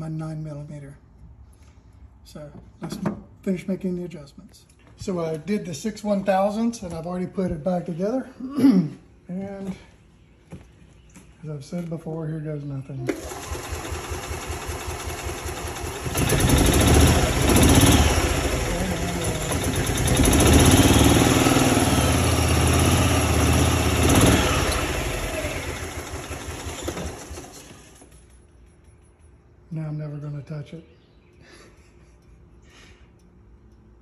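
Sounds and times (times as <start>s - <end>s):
small engine cranking and running: 13.1s - 28.5s.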